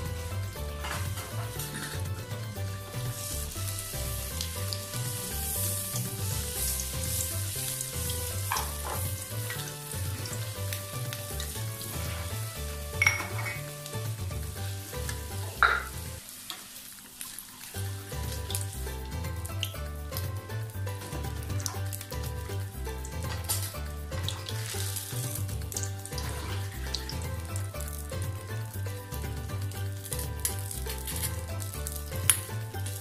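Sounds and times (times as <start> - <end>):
background music with beat: 0.0 - 16.2, 17.8 - 33.0
hot oil sizzling: 0.0 - 33.0
metal spoon clinking: 13.0 - 13.6, 15.6 - 15.9.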